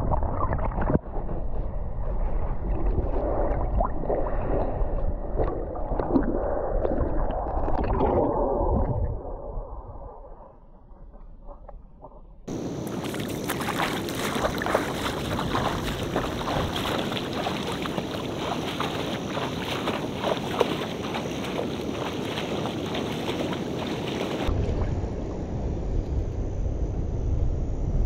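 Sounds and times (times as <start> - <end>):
wind rumbling on microphone: 0.0 - 28.0
legs splashing through shallow water: 12.5 - 24.5.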